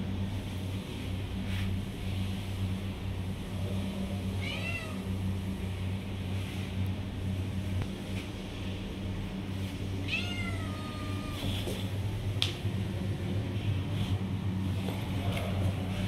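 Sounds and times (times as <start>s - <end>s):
steady low hum: 0.0s - 16.0s
kitten mewing: 4.4s - 5.0s, 10.0s - 11.5s.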